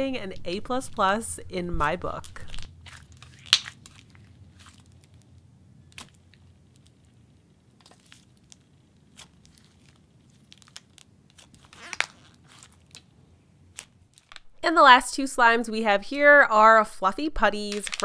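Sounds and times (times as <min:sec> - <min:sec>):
slime popping: 0:02.2 - 0:05.3
slime sticky clicks and crackles: 0:02.4 - 0:05.3, 0:05.9 - 0:07.2, 0:07.8 - 0:13.1.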